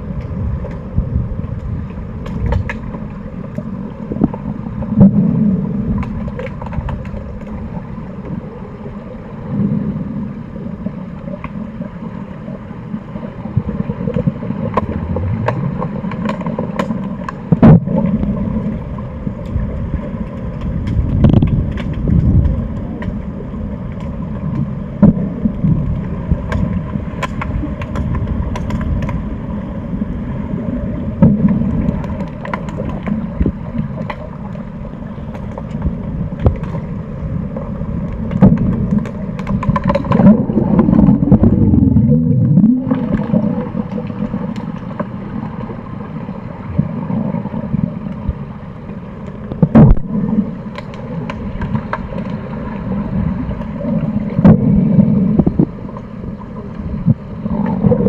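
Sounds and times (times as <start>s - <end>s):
underwater low rumble: 0.0s - 58.0s
underwater clicks and knocks: 1.5s - 5.2s, 5.9s - 7.7s, 13.6s - 18.5s, 19.4s - 29.4s, 31.2s - 34.6s, 35.2s - 36.9s, 38.0s - 45.6s, 49.2s - 52.4s, 53.5s - 56.1s.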